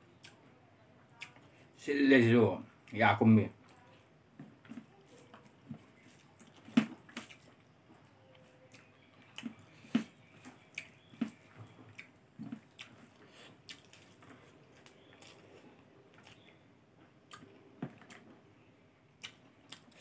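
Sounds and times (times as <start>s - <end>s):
wet mouth smacks chewing: 6.0s - 7.6s, 8.7s - 16.5s, 17.3s - 18.3s, 19.2s - 20.0s.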